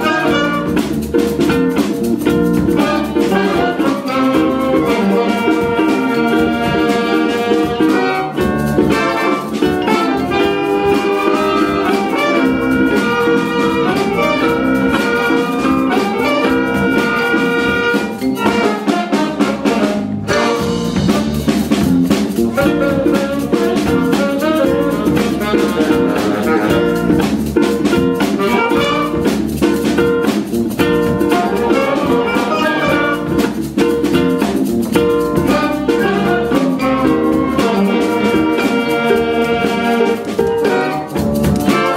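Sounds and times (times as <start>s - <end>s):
saxophones: 0.0s - 0.9s, 2.7s - 21.5s, 22.5s - 27.3s, 27.9s - 29.4s, 31.2s - 33.5s, 35.4s - 41.9s
trumpets and brass: 0.0s - 0.9s, 2.7s - 21.5s, 22.5s - 27.2s, 28.4s - 29.4s, 31.3s - 33.5s, 35.4s - 41.9s
drum kit beat: 0.0s - 41.9s.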